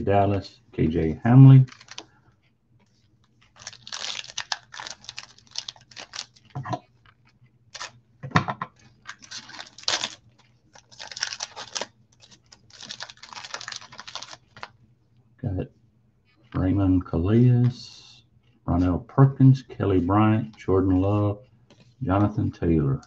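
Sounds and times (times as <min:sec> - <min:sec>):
foil wrapper tearing and crinkling: 0:01.7 - 0:02.0, 0:03.6 - 0:06.6, 0:09.0 - 0:14.7.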